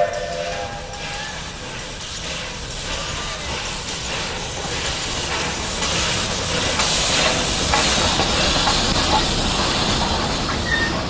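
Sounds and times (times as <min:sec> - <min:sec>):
locomotive running gear rumble: 0:00.0 - 0:11.0
steam hissing: 0:00.0 - 0:11.0.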